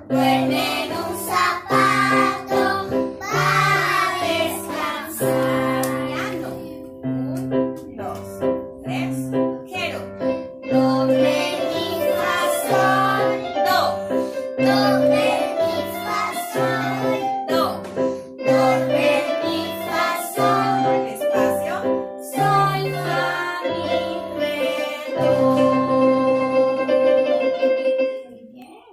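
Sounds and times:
children singing: 0.0s - 6.8s, 10.7s - 13.9s, 14.6s - 17.4s, 18.4s - 21.6s, 22.2s - 26.3s
bass accompaniment: 0.0s - 21.9s, 24.0s - 28.8s.

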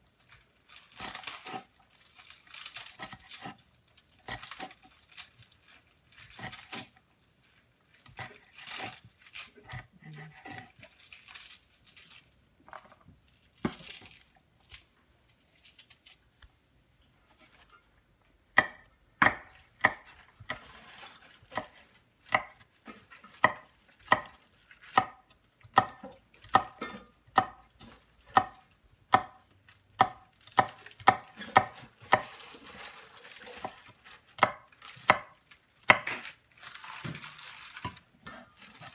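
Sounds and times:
knife chopping vegetables: 0.9s - 1.7s, 2.5s - 3.6s, 4.2s - 5.3s, 6.2s - 7.0s, 8.0s - 10.9s, 18.6s - 36.4s.

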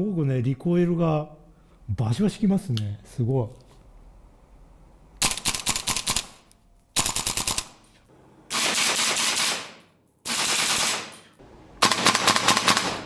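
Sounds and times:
airsoft rifle full-auto bursts: 5.2s - 6.4s, 7.0s - 7.7s, 8.5s - 11.1s, 11.8s - 13.0s.

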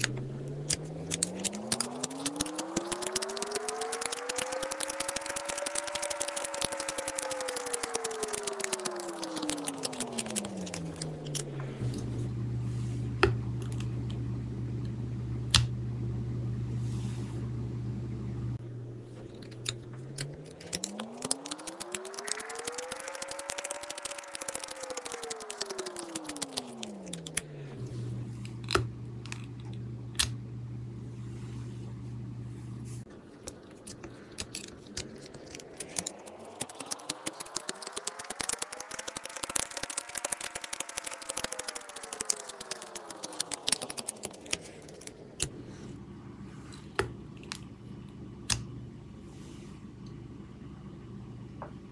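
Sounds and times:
rising and falling tone: 0.0s - 33.1s
low steady hum: 0.0s - 34.9s, 44.6s - 51.9s.

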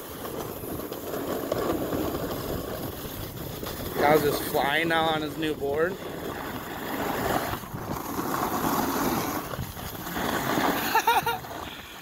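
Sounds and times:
snowboard scraping over snow: 0.0s - 12.0s
wind buffeting microphone: 1.4s - 10.4s.

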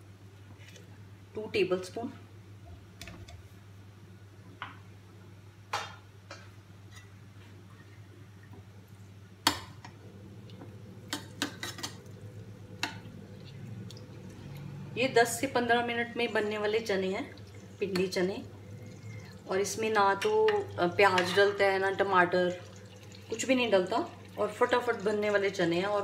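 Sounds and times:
steady low hum: 6.6s - 26.0s.

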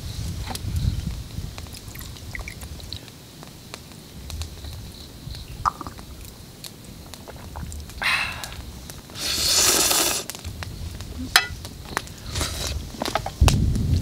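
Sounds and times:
person slurping noodles: 9.2s - 10.3s.

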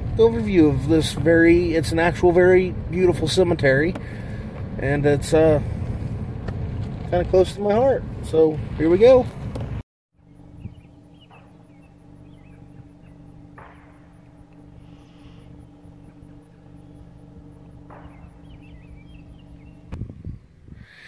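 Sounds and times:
steady low hum: 0.0s - 21.0s
faint bird chirps: 10.2s - 20.5s.

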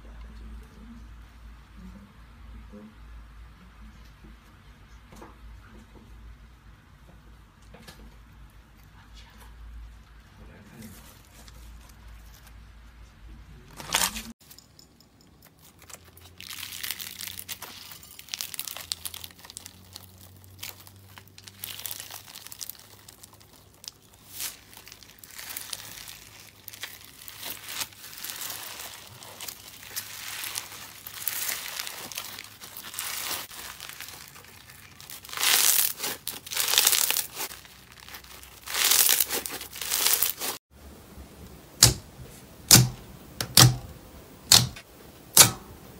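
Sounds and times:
slime squishing: 15.4s - 40.6s
foam slime crackling: 15.6s - 40.6s.

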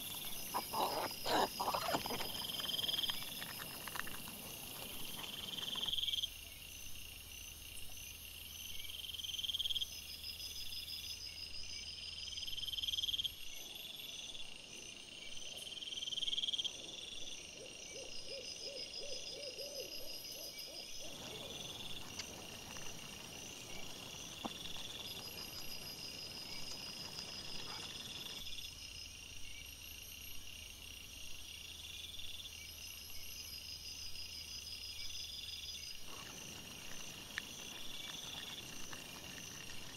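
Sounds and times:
pulsed insect trills: 0.0s - 7.3s, 18.7s - 39.9s
night insects chirping: 0.0s - 39.9s.

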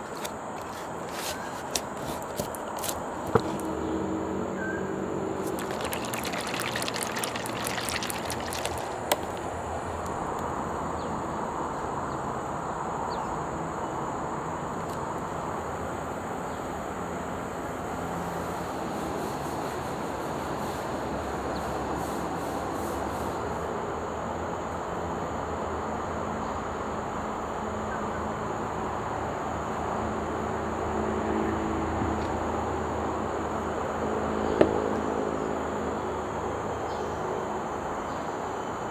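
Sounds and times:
outdoor hiss and rumble: 0.0s - 38.9s
bottle cap crackling open: 5.4s - 10.2s.

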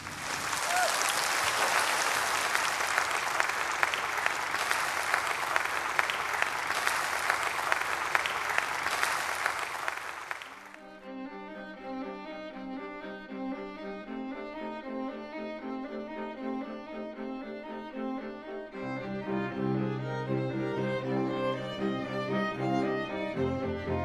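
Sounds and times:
crowd applauding: 0.0s - 10.8s
music: 10.8s - 24.0s.

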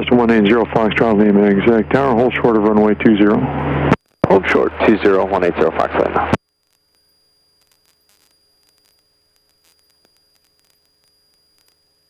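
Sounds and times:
faint steady high tone: 1.0s - 12.0s
faint static clicks: 3.6s - 12.0s.

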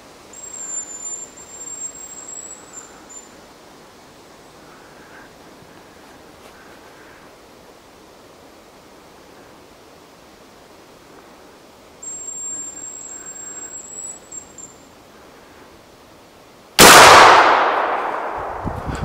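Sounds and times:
high thin bird whistle: 0.3s - 3.4s, 12.0s - 14.8s
loud shotgun shot: 16.8s - 18.8s.

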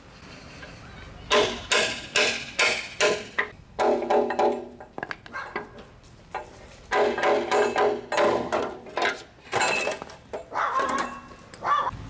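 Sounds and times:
hammer striking steel punch: 1.3s - 4.7s.

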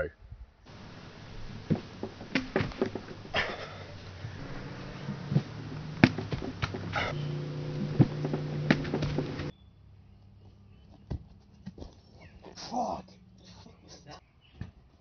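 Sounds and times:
hands and feet thudding on cooler: 0.7s - 9.5s
low hum: 0.7s - 9.5s.

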